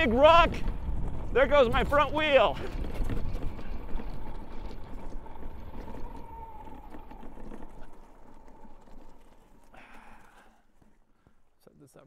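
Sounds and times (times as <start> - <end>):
tyres rumbling on gravel: 0.0 - 12.0
stones clicking and rattling: 2.5 - 11.4.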